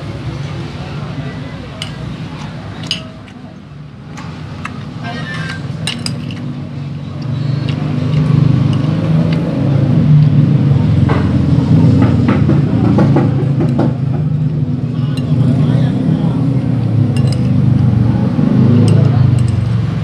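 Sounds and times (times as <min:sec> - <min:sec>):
vehicle engine rumbling: 0:00.0 - 0:20.0
cutlery clinking on a plate: 0:01.8 - 0:03.4, 0:04.6 - 0:06.5, 0:17.2 - 0:17.6.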